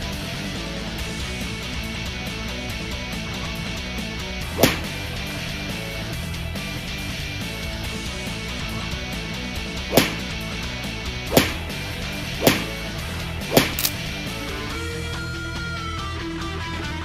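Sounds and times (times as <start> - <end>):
sharp whip cracks: 4.5 - 5.0, 9.9 - 10.3, 11.3 - 11.7, 12.4 - 12.8, 13.5 - 14.0.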